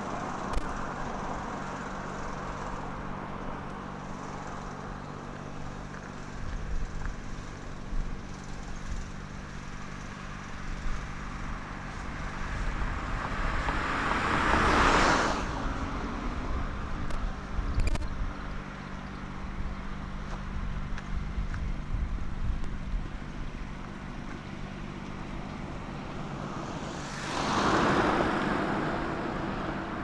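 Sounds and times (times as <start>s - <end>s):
low rumble of traffic: 0.0s - 30.0s
car passing: 10.2s - 17.0s, 24.6s - 30.0s.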